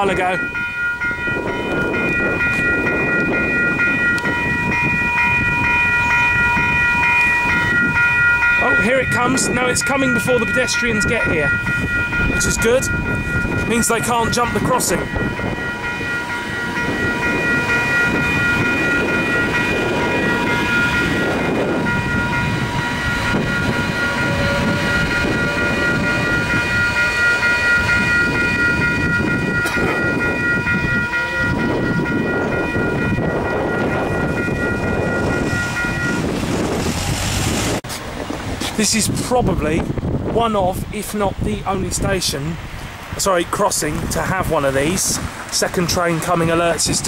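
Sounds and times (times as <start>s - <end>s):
level crossing bells ringing: 0.0s - 36.8s
electric train rumbling over rails: 0.0s - 47.0s.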